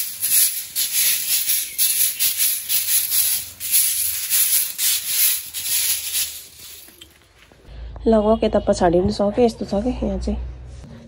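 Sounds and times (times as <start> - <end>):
broom sweeping concrete floor: 0.0 - 7.1.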